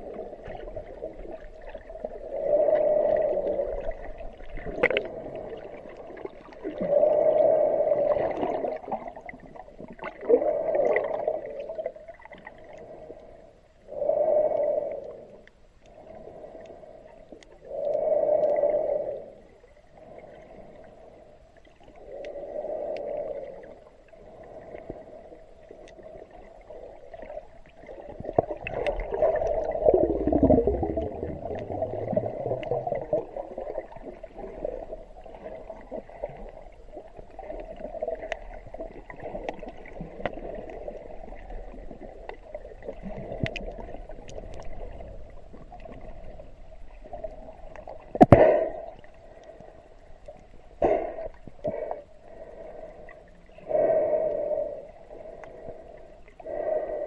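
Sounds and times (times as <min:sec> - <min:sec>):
underwater swishing and gurgling: 0:00.0 - 0:57.0
faint clicks: 0:14.4 - 0:18.8, 0:21.8 - 0:23.8, 0:37.5 - 0:41.5, 0:42.2 - 0:44.8, 0:55.2 - 0:56.4.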